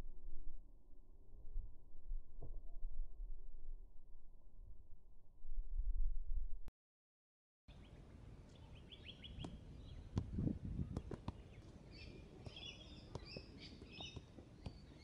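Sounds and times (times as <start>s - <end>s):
small birds chirping: 7.7s - 15.0s.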